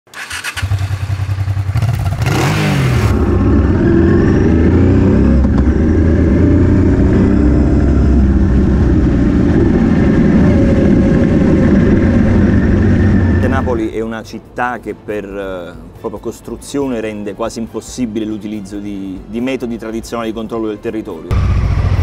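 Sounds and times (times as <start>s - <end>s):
motorcycle engine revving: 0.1s - 13.8s, 21.3s - 22.0s
loud rush of noise: 2.7s - 13.9s.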